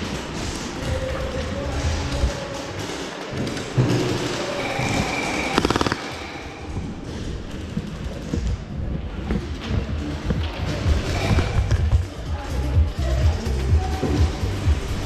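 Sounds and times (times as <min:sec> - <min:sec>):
gel blaster firing burst: 0:05.6 - 0:06.4.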